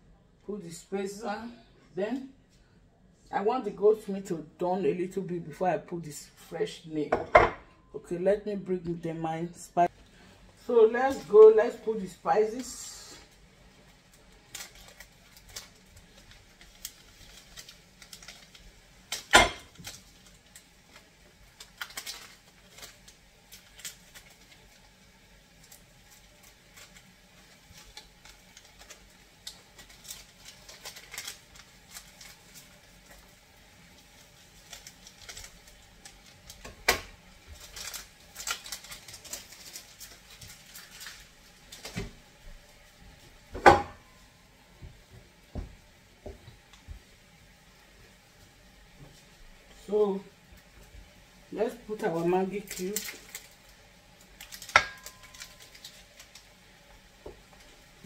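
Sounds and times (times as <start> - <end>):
sachets clicking and crinkling: 14.0 - 36.6, 37.3 - 42.0, 52.6 - 56.8.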